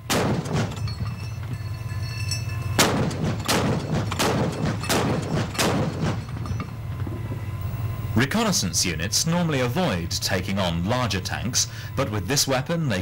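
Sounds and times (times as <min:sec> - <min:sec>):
cannon firing heavy shots: 0:00.0 - 0:00.9, 0:02.8 - 0:06.5
steady low rumble: 0:00.0 - 0:13.0.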